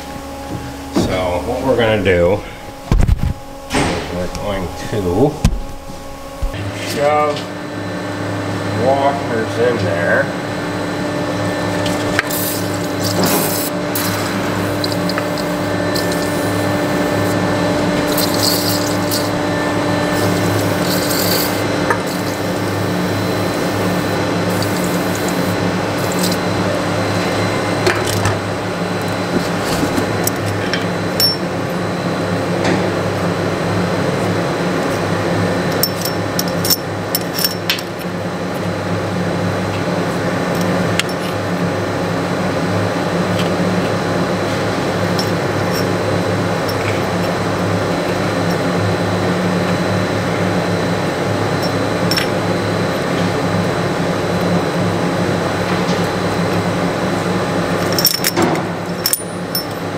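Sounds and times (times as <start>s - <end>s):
steady machine hum: 0.0s - 59.9s
metallic clinks of steel washers: 18.1s - 19.3s, 35.7s - 38.0s, 57.8s - 59.9s.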